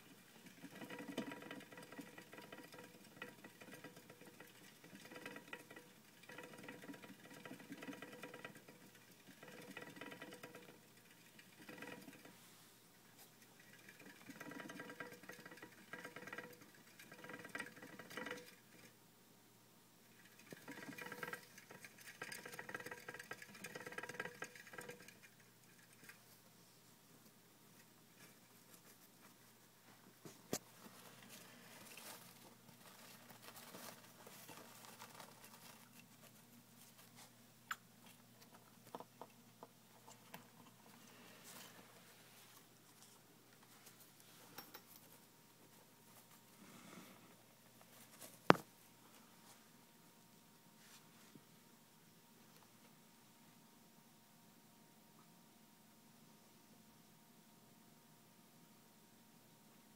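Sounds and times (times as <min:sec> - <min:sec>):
exercise wheel rattling and whirring: 0:00.0 - 0:12.4, 0:13.4 - 0:19.0, 0:20.1 - 0:26.2
hamster feet pattering: 0:00.0 - 0:12.4, 0:13.0 - 0:19.0, 0:20.1 - 0:26.5, 0:27.7 - 0:46.6, 0:47.6 - 0:49.7.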